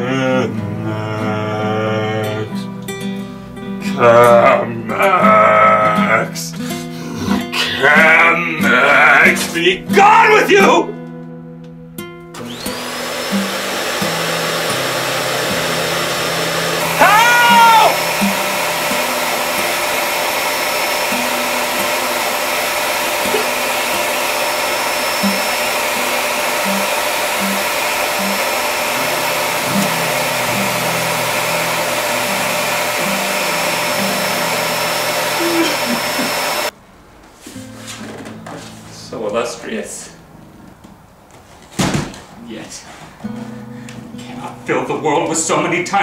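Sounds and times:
rising and falling wail: 13.1s - 36.7s
low musical notes: 18.0s - 36.5s.

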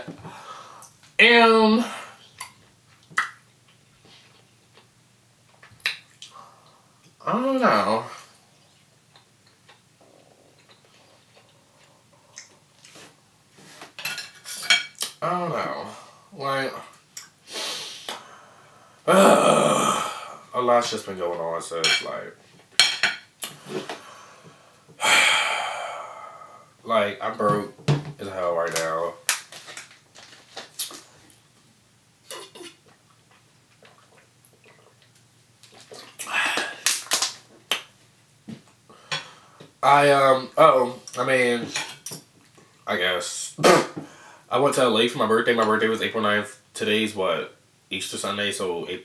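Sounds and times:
cutlery scraping and clinking on plate: 13.7s - 15.0s.

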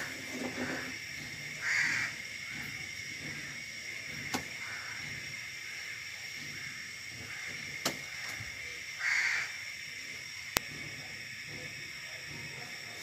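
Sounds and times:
gas burner flame hissing: 0.0s - 13.0s.

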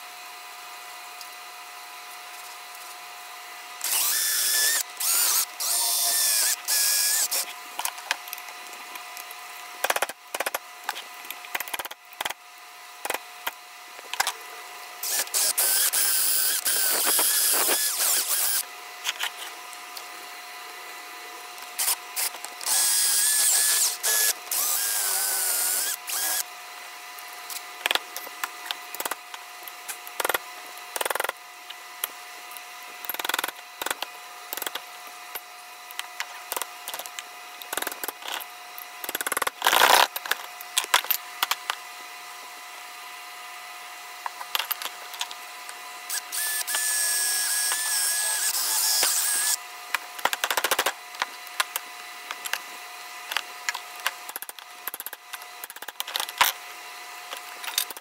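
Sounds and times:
power drill whining: 3.8s - 7.5s, 15.0s - 18.6s, 21.8s - 26.5s, 46.1s - 49.6s.

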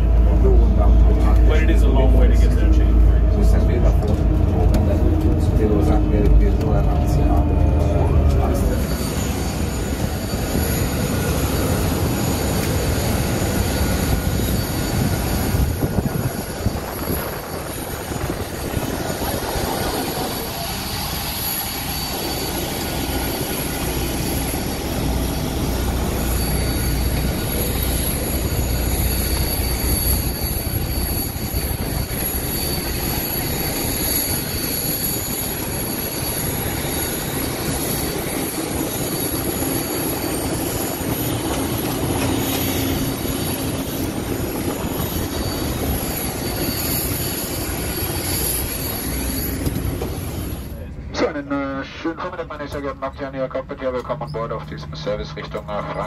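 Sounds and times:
faint high whine: 4.9s - 56.0s.

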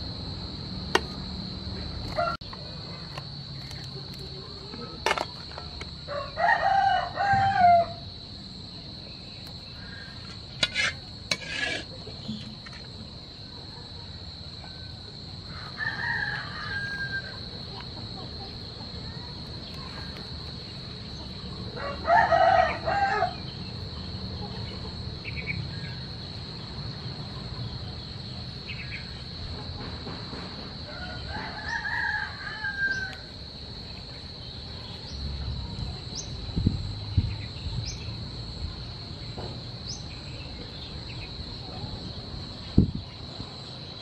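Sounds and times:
insect drone: 0.0s - 44.0s
rooster crowing: 2.1s - 2.5s, 6.1s - 8.2s, 15.5s - 17.5s, 21.8s - 23.4s, 30.8s - 33.3s.

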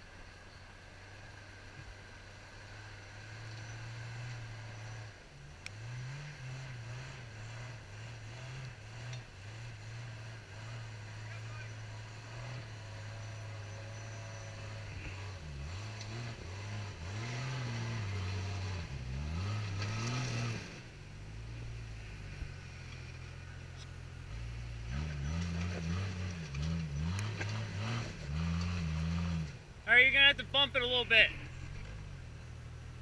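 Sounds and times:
car engine idling and revving: 0.0s - 33.0s.

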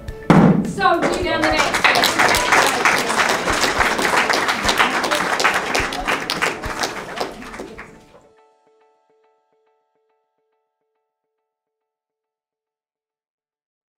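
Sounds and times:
crowd applauding: 0.9s - 8.2s.

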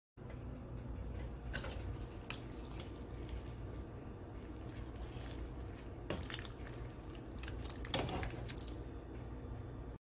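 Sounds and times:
low steady hum: 0.2s - 10.0s
ladle stirring soup in a pot: 1.4s - 8.9s.

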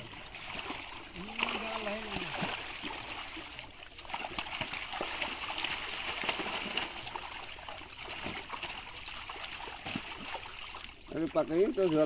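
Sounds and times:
water splashing and sloshing: 0.0s - 12.0s.

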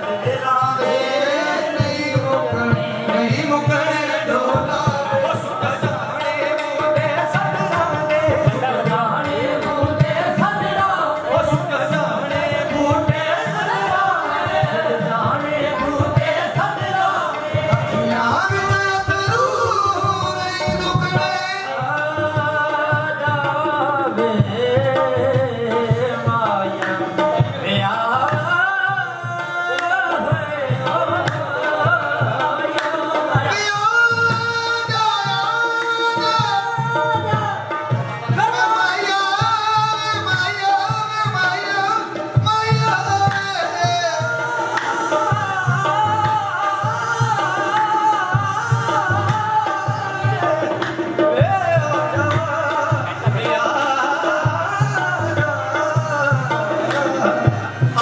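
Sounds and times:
hand drum rhythm: 0.0s - 58.0s.

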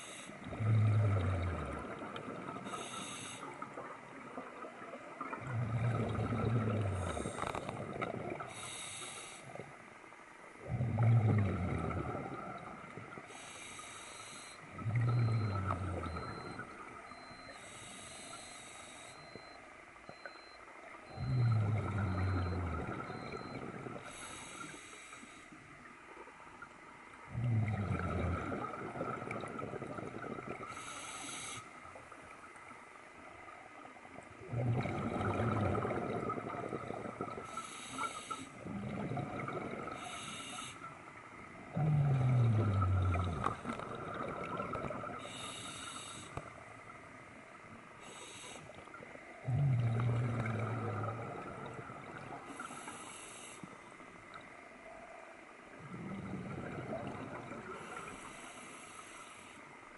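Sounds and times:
rush of exhaled bubbles: 0.0s - 8.6s, 10.6s - 13.2s, 14.7s - 17.4s, 21.1s - 24.2s, 27.3s - 30.9s, 34.4s - 37.6s, 38.6s - 40.4s, 41.7s - 45.6s, 48.7s - 52.8s, 55.7s - 58.3s
hissing inhalations: 17.5s - 19.4s, 45.2s - 46.5s, 48.0s - 48.8s.

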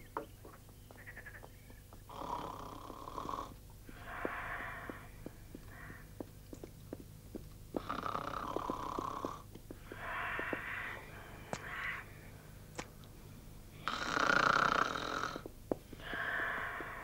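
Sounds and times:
man snoring: 2.1s - 4.9s, 7.8s - 9.4s, 13.8s - 17.0s.

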